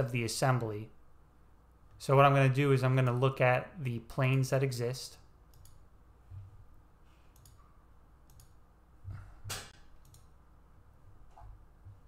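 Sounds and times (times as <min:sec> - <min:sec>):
faint low room hum: 0:00.0 - 0:12.0
computer mouse clicking: 0:05.5 - 0:05.8, 0:07.3 - 0:07.6, 0:08.3 - 0:08.6, 0:09.5 - 0:10.4.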